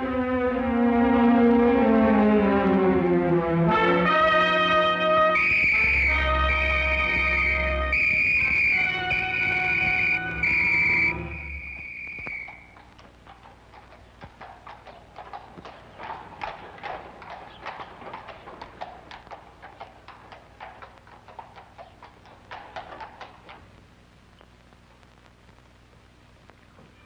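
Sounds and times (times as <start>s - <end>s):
horse hooves clip-clopping: 4.0s - 25.0s.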